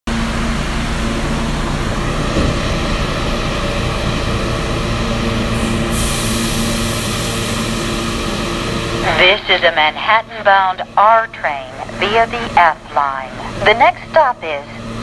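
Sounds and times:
train equipment humming: 0.1s - 15.0s
air hiss: 5.6s - 7.8s
platform noise: 9.0s - 15.0s.

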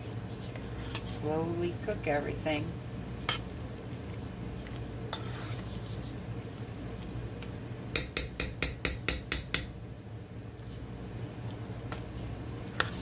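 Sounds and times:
spoon stirring thick food: 0.0s - 8.4s, 11.4s - 13.0s
low steady hum: 0.0s - 13.0s.

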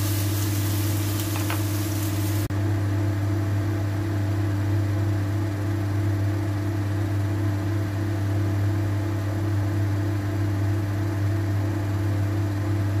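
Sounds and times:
even hiss: 0.0s - 2.5s
appliance motor hum: 0.0s - 13.0s.

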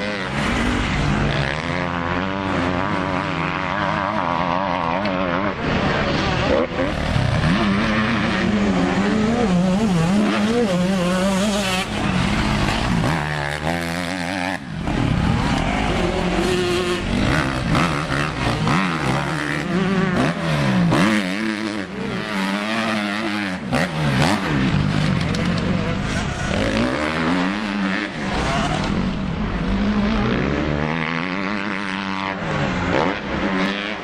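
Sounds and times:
motocross bike engines revving: 0.0s - 34.0s.

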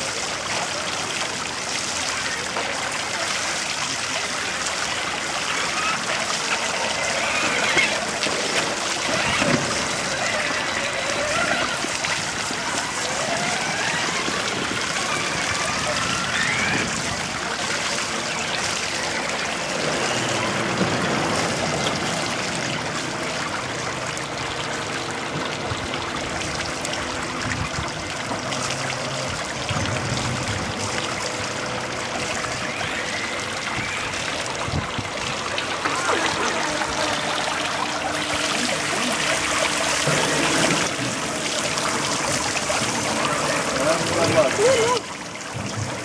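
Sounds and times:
water trickling into a gutter: 0.0s - 46.0s.

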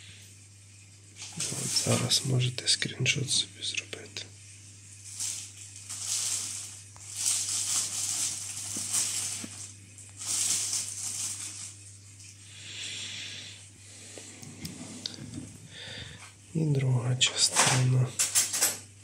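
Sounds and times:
steady low hum: 0.0s - 19.0s
paper rustling: 1.2s - 2.3s, 5.0s - 12.4s.

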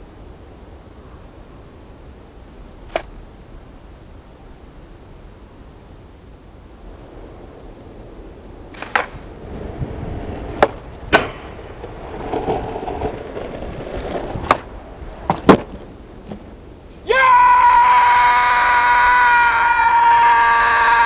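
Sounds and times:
skateboard wheels rolling on concrete: 4.9s - 21.0s
skateboard clacking on ground: 8.7s - 17.0s.

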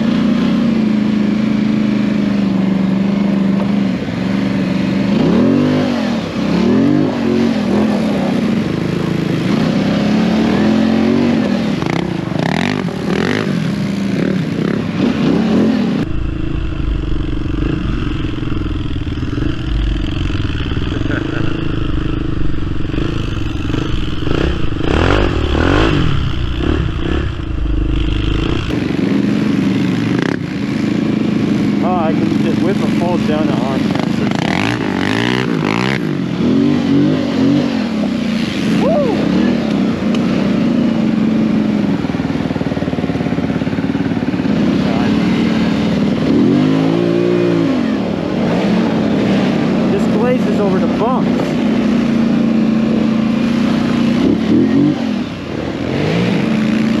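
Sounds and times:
atv engine revving: 0.0s - 57.0s
deep heavy rumble: 14.9s - 30.7s.

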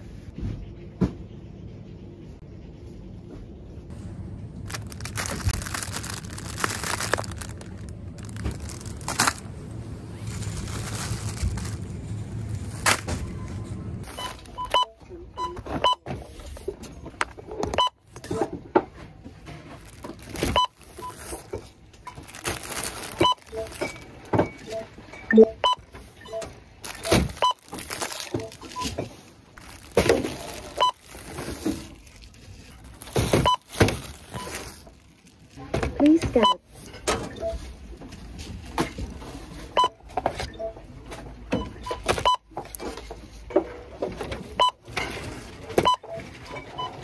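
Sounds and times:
packaged groceries rustling: 4.2s - 14.8s, 19.2s - 25.1s, 25.8s - 36.2s
barcode scanner short beeps: 24.7s - 26.4s.

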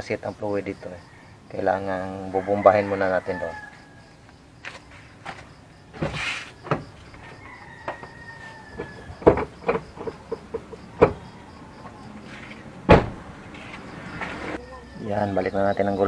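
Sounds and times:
rooster crowing: 1.0s - 4.4s, 6.5s - 12.4s
brake pedal clunks: 8.7s - 13.9s.

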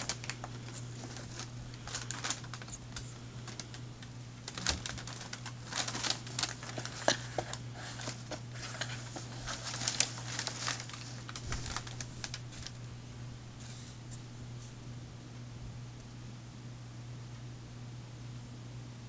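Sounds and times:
packing paper crinkling: 0.0s - 12.9s.

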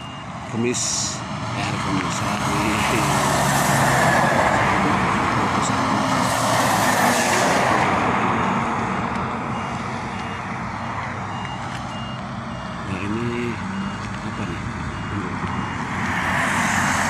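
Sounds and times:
steady electronic beep: 0.0s - 1.1s, 9.1s - 15.9s
vehicle passing on highway: 0.0s - 17.0s.

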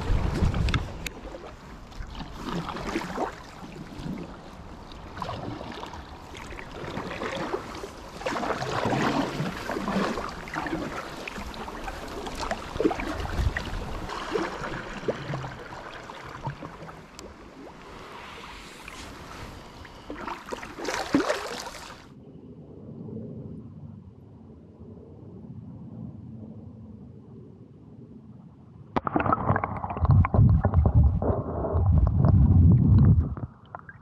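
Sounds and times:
wind rumble on microphone: 0.0s - 15.7s, 22.0s - 29.0s, 29.6s - 34.0s
paddle splashing water: 0.0s - 22.1s.

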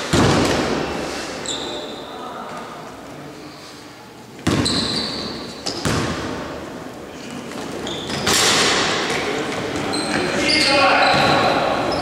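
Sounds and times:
basketball bouncing on court floor: 4.4s - 5.0s, 5.7s - 6.4s.

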